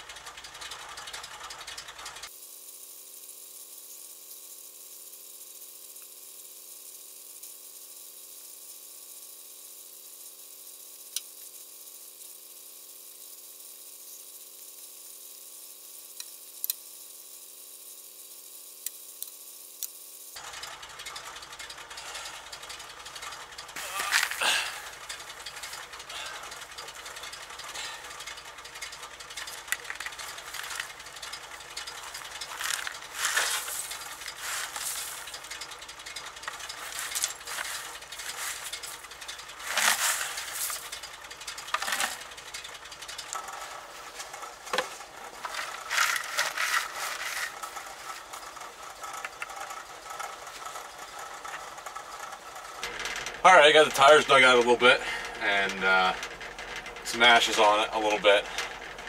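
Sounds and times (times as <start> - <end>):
truck engine idling: 0.0 - 59.0
snow scraping and crunching: 31.9 - 35.4, 36.5 - 40.9, 43.5 - 48.4.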